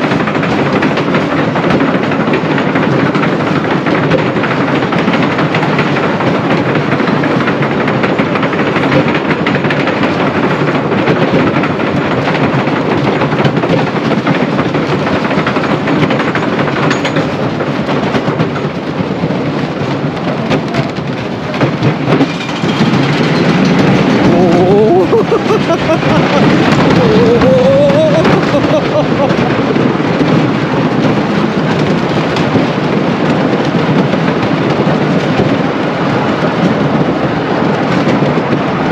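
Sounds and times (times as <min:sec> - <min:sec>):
roller coaster rumbling on wooden track: 0:00.0 - 0:38.9
wind rushing: 0:17.6 - 0:38.9
riders screaming: 0:24.2 - 0:29.4.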